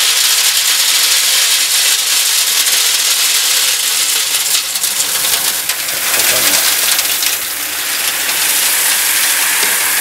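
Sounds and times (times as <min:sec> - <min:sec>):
grain pouring into metal drum: 0:00.0 - 0:10.0.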